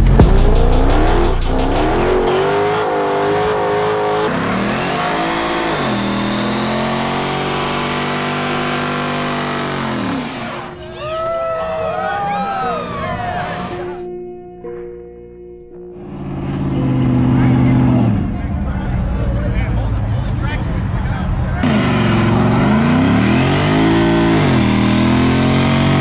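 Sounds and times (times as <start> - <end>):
car engine at high revs: 0.0 - 10.7, 16.0 - 19.7, 20.7 - 26.0
spinning tyres hissing: 0.6 - 10.7.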